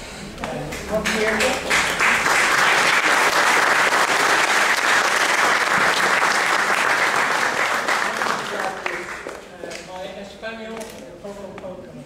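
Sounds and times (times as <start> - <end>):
audience applauding: 0.7 - 9.5.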